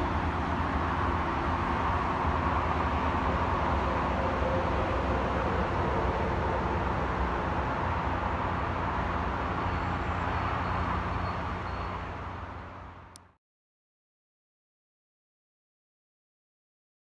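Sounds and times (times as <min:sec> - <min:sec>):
distant diesel train rumble: 0:00.0 - 0:13.2.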